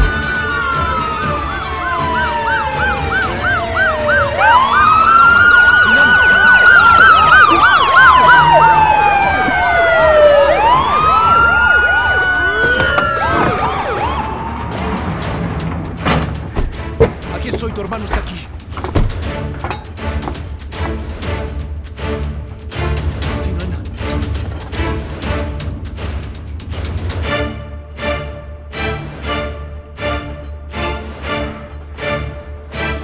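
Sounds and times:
fast warbling siren: 0:00.0 - 0:14.9
wailing siren: 0:00.0 - 0:16.2.

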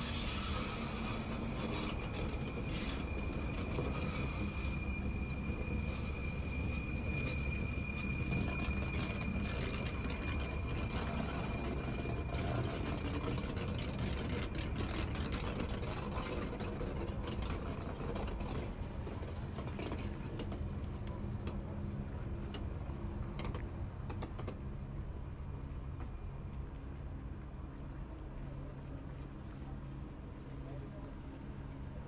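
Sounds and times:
electric train whirring: 0:00.0 - 0:16.2.

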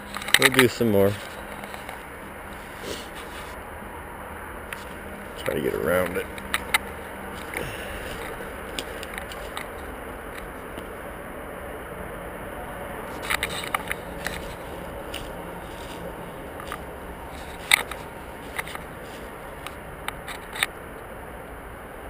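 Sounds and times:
dry leaves snapping underfoot: 0:00.0 - 0:03.6, 0:04.7 - 0:10.9, 0:13.0 - 0:20.7
steady hiss: 0:00.0 - 0:22.0.

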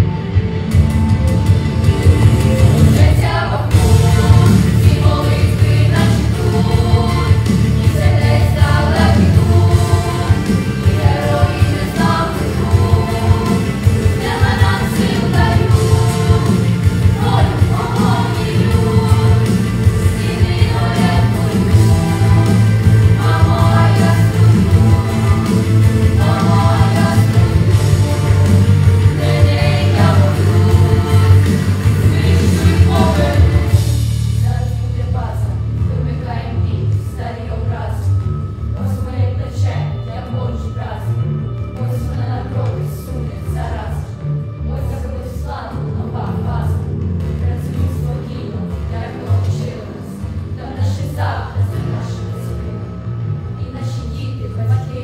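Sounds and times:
instrumental accompaniment: 0:00.0 - 0:34.7
children singing: 0:02.5 - 0:34.0.

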